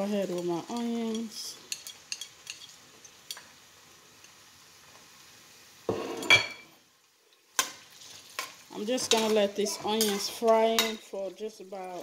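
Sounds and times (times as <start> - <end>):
onions sizzling in oil: 0.0 - 12.0
spatula scraping pot: 5.9 - 6.5.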